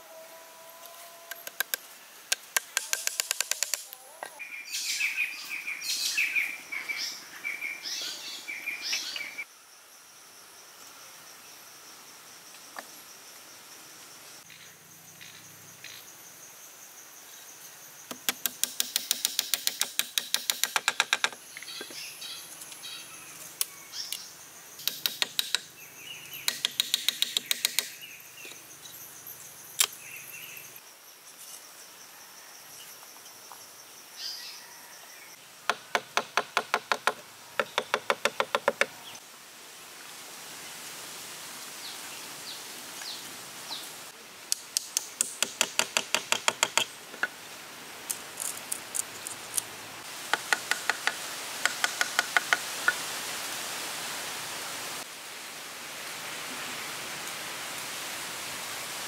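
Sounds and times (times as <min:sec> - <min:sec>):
high insect drone: 0:08.2 - 0:39.4
rapid sharp knocks: 0:18.1 - 0:21.4, 0:26.5 - 0:27.9.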